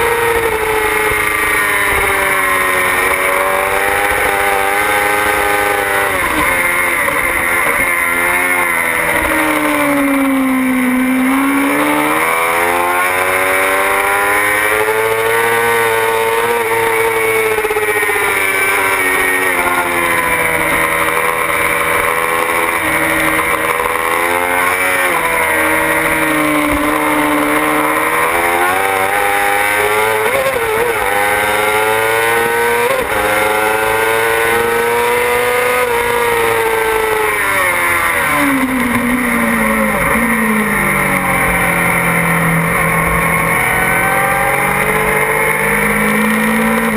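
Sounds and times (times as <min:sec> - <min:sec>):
motorcycle engine revving: 0:00.0 - 0:46.9.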